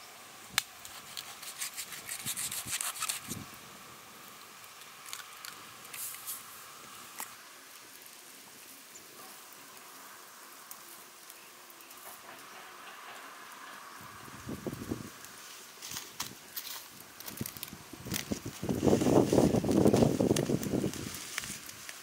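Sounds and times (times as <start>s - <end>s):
broth simmering hiss: 0.0s - 22.0s
fire ticks and pops: 10.6s - 22.0s.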